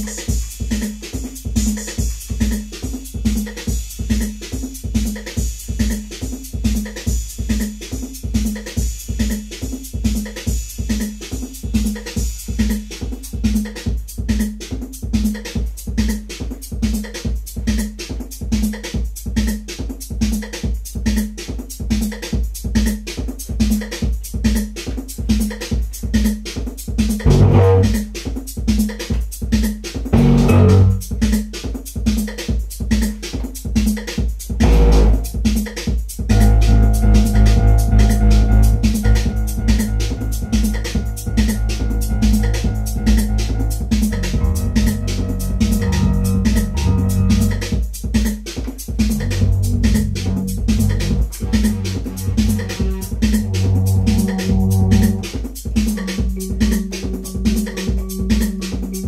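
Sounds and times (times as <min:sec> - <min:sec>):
drum machine techno beat: 0:00.0 - 0:59.0
synthesizer chords: 0:27.3 - 0:28.0, 0:30.2 - 0:31.0, 0:34.6 - 0:35.3, 0:36.3 - 0:47.8, 0:49.2 - 0:55.3.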